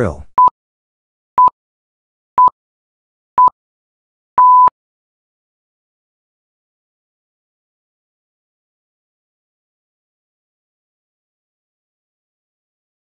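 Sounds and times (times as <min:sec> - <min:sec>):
timer countdown beeps: 0:04.4 - 0:04.7.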